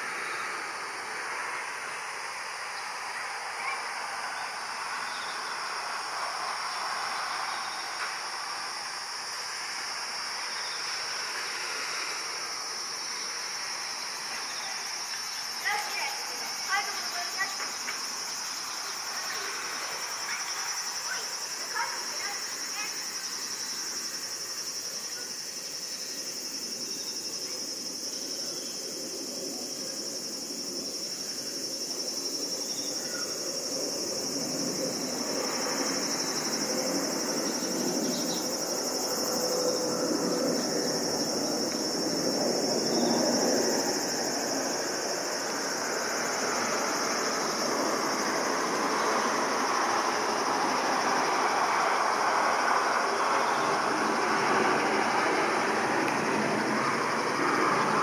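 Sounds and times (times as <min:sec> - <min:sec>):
summer insects buzzing: 0:00.0 - 0:58.0
distant jet rumble: 0:33.3 - 0:58.0.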